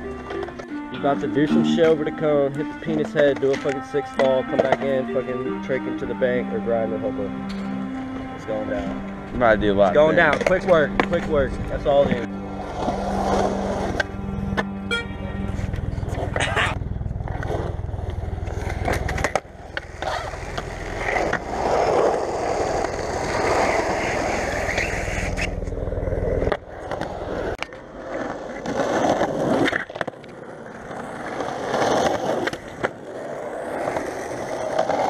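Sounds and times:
skateboard wheels rolling on concrete: 0.0 - 35.0
skateboard clacks: 2.8 - 5.0, 18.1 - 25.5, 26.4 - 35.0.

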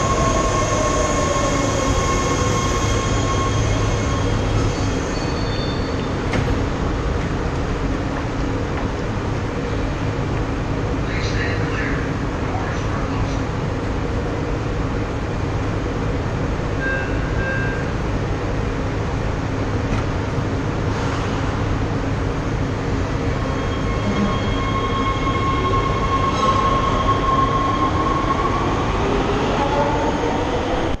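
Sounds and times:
train doors closing: 0.0 - 9.1, 19.7 - 21.8
subway train rumbling: 0.0 - 31.0.

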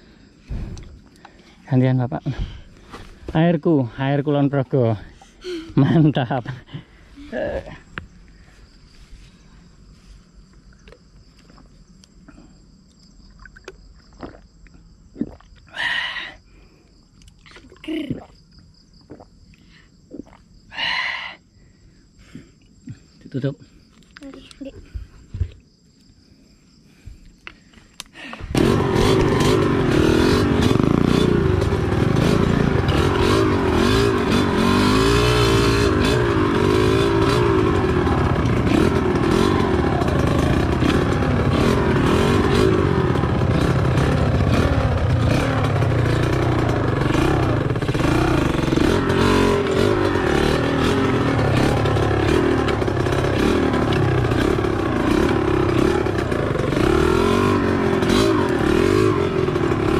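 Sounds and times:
motorcycle engine revving: 28.4 - 59.9.

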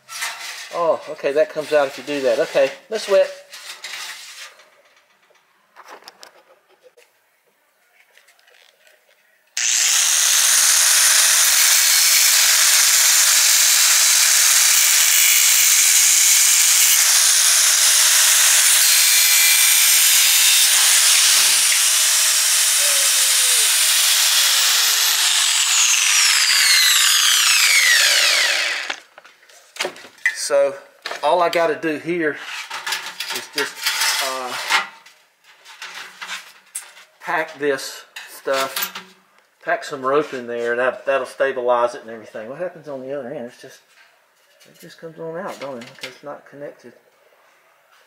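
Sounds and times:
angle grinder running: 9.6 - 29.1
grinder winding down whine: 9.6 - 29.1.

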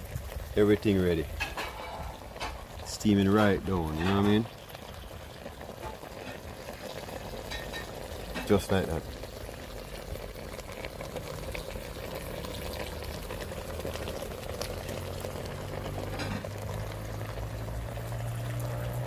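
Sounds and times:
stew bubbling in a pot: 0.0 - 19.0.

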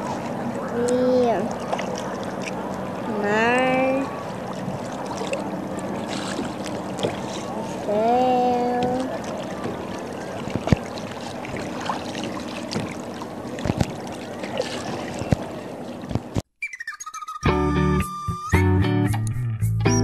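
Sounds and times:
water lapping against kayak hull: 0.0 - 16.5
faint guitar music: 17.4 - 20.0.

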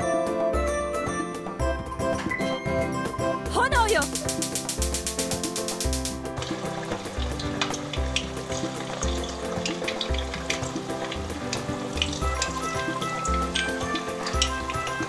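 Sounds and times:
chicken deep-frying in oil: 4.2 - 15.0.

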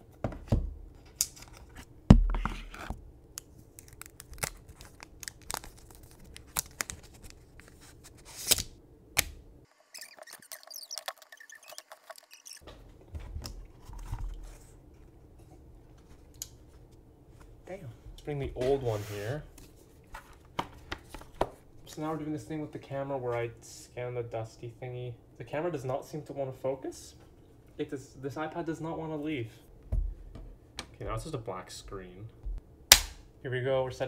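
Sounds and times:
paper packaging tearing: 3.8 - 8.7.

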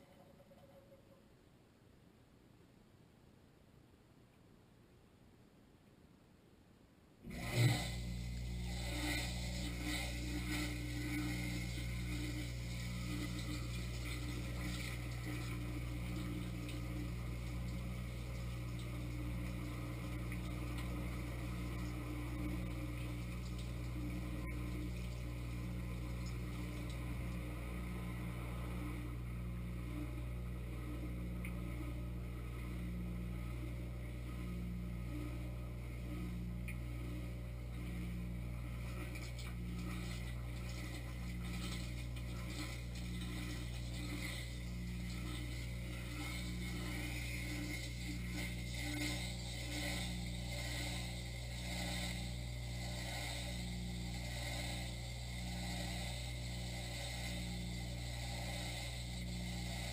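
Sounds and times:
pump motor humming: 7.2 - 59.9
water spraying against rack: 7.3 - 27.4, 38.8 - 57.4.

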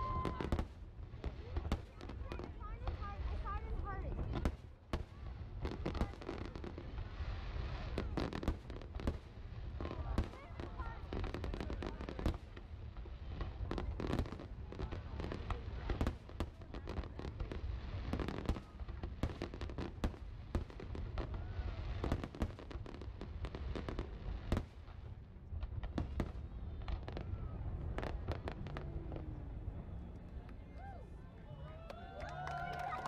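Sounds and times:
fireworks bursting with sharp bangs: 0.0 - 30.2
continuous low rumble: 22.7 - 33.0.

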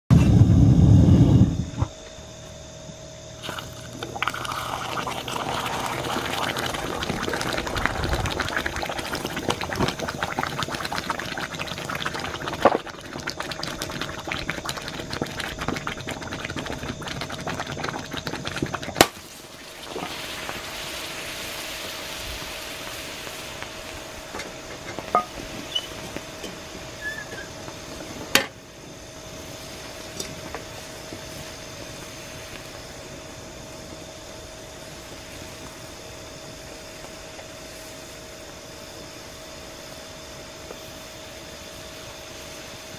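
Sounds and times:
loud low rumble: 0.1 - 1.9
molten lava sizzling and crackling: 3.4 - 42.9.

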